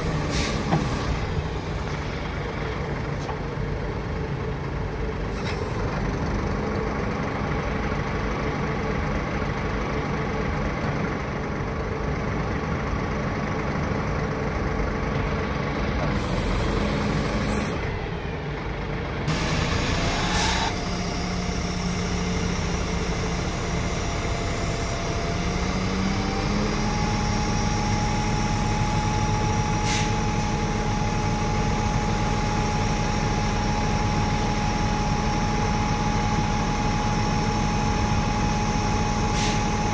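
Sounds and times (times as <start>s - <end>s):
diesel truck engine idling: 0.0s - 39.9s
hydraulic whine: 16.0s - 18.4s, 19.3s - 39.9s.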